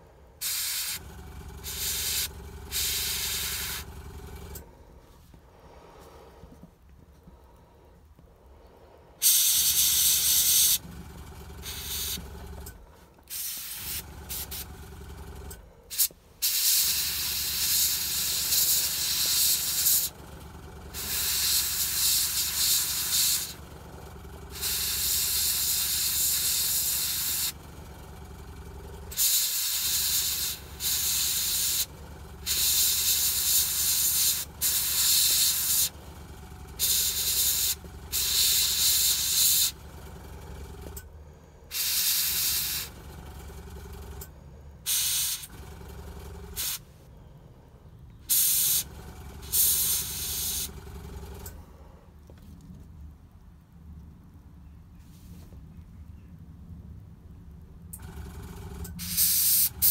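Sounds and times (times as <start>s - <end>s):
steady low hum: 0.0s - 48.3s
airbrush spraying hiss: 0.4s - 1.0s, 1.6s - 3.9s, 9.2s - 10.8s, 11.6s - 12.2s, 13.3s - 14.6s, 15.9s - 20.1s, 21.0s - 23.6s, 24.6s - 27.6s, 29.2s - 31.9s, 32.5s - 35.9s, 36.8s - 39.8s, 41.7s - 42.9s, 44.9s - 45.5s, 48.3s - 48.8s, 49.5s - 50.7s, 59.0s - 59.9s.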